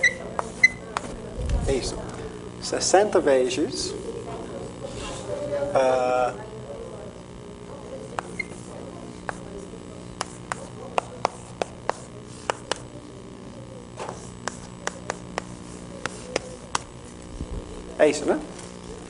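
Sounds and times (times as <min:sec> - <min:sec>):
chalk tapping on chalkboard: 0:00.0 - 0:01.1, 0:08.1 - 0:09.5, 0:10.2 - 0:12.9, 0:14.0 - 0:16.9.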